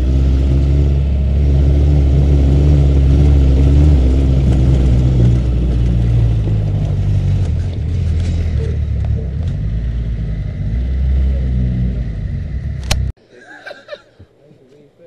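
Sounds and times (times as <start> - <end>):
buggy engine rumbling: 0.0 - 13.2.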